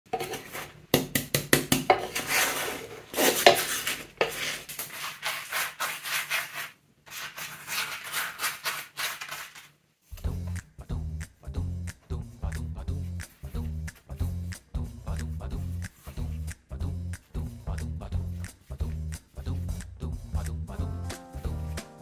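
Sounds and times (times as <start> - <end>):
wooden spatulas scraping pan: 0.1 - 0.8, 1.9 - 9.7
brush spreading oil: 2.1 - 9.7.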